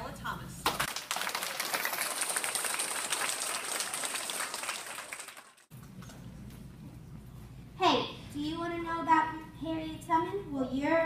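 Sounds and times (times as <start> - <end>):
low room hum: 0.0 - 11.0
children clapping: 0.7 - 5.7.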